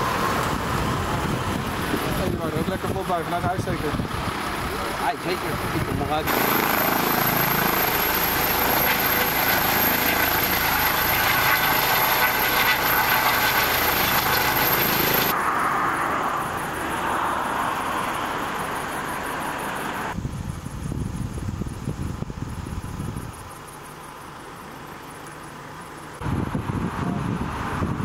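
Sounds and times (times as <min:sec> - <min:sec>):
helicopter turbine and rotor: 0:00.0 - 0:28.0
high turbine hiss: 0:06.2 - 0:15.4.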